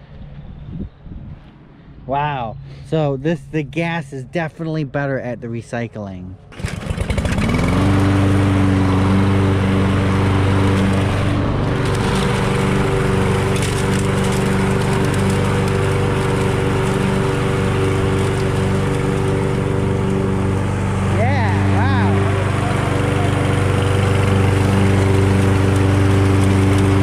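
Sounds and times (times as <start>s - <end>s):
lawn mower running: 6.5s - 27.0s
debris crackling through mower deck: 6.6s - 27.0s.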